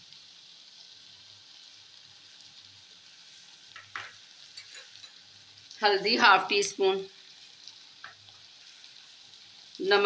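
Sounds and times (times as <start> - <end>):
food sizzling in a wok: 0.0 - 10.0
spatula scraping a pan: 3.8 - 5.2.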